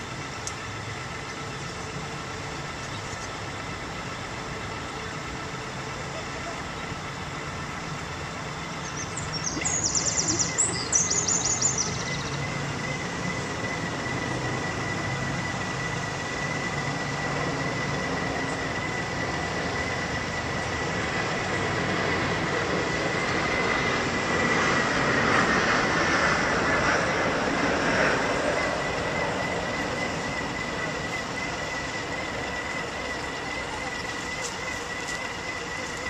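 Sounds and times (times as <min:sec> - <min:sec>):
model boat motor whine: 0:00.0 - 0:36.0
rushing noise: 0:03.4 - 0:36.0
high chirping: 0:08.7 - 0:13.1.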